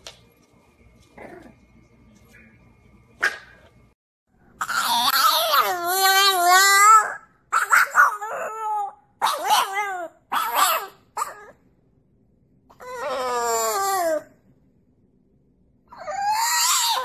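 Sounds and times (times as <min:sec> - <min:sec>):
dog howling and whining: 0:04.6 - 0:11.6, 0:12.7 - 0:14.4, 0:15.9 - 0:17.0.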